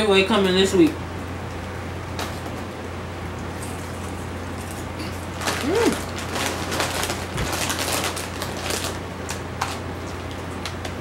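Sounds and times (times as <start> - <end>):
steady low hum: 0.0 - 11.0
chip bag crackling: 3.6 - 11.0
chips crunching: 3.6 - 11.0.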